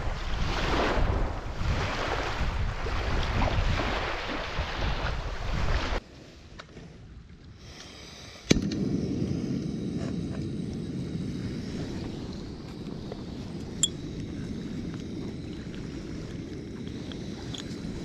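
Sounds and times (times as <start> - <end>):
wind on microphone: 0.0 - 6.0, 8.5 - 18.0
small waves on sandy shore: 0.0 - 6.9.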